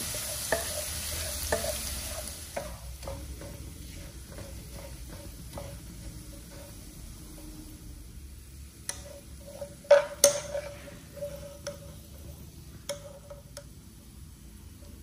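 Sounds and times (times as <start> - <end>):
metal strainer clinking on pan: 8.9 - 12.0.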